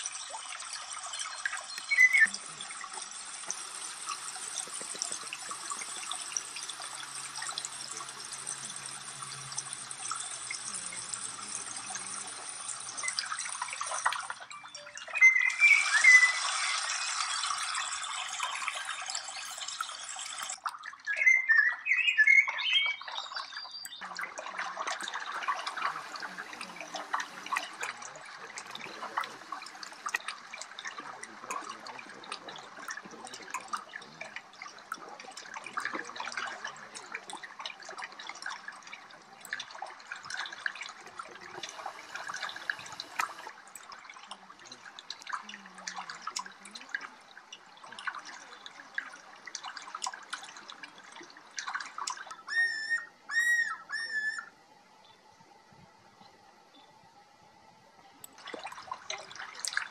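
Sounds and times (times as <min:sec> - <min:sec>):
water trickling over stones: 0:00.0 - 0:54.0, 0:58.2 - 0:59.9
high chirping: 0:01.2 - 0:02.6, 0:14.2 - 0:24.0.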